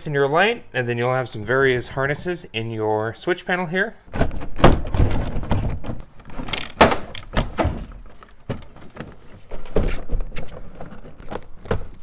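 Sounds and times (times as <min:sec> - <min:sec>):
plastic panel knocks and rattles: 0:04.1 - 0:12.0.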